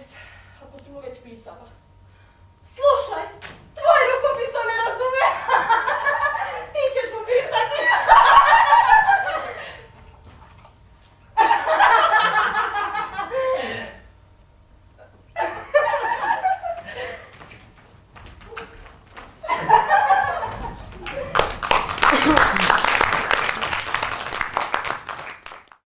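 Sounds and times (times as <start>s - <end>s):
people laughing: 4.8s - 10.0s, 11.4s - 14.0s, 15.4s - 17.4s, 19.4s - 24.5s.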